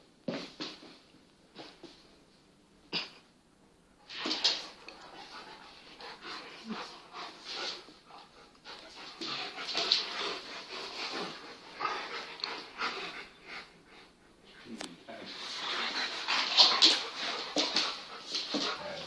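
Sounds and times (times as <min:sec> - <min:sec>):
dogs play-fighting noises: 0:04.0 - 0:14.6, 0:15.2 - 0:19.0
dog panting: 0:04.8 - 0:14.6, 0:15.3 - 0:19.0.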